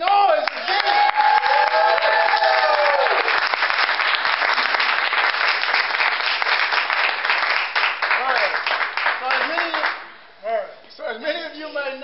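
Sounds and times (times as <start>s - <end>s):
crowd clapping: 0.0s - 10.1s.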